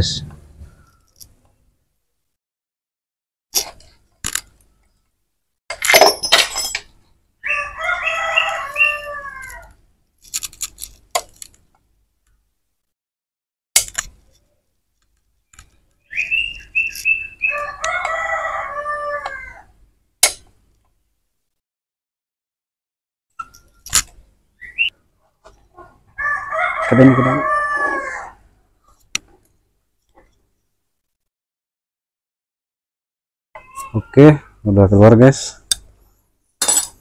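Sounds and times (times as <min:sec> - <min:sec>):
rooster crowing: 0:07.4 - 0:09.8, 0:17.4 - 0:19.7, 0:26.2 - 0:28.4.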